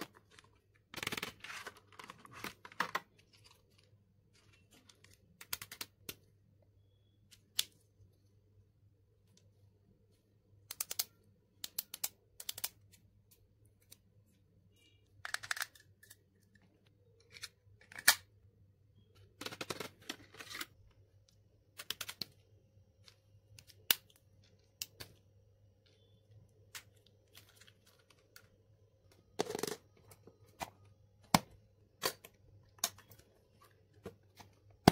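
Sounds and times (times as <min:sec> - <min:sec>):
plastic pens clicking: 0:04.8 - 0:06.3, 0:10.6 - 0:12.9, 0:15.2 - 0:16.6.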